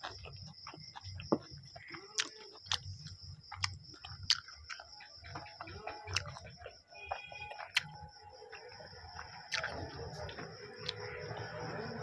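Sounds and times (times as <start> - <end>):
person chewing with lip smacks: 0.0 - 6.5, 7.6 - 8.0, 9.5 - 11.0.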